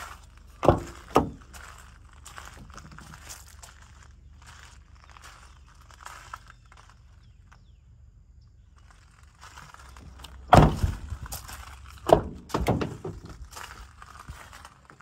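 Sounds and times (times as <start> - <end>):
heavy car door thunk: 0.6 - 1.5, 10.5 - 11.1, 12.0 - 13.4
door latch clunks: 12.1 - 13.3.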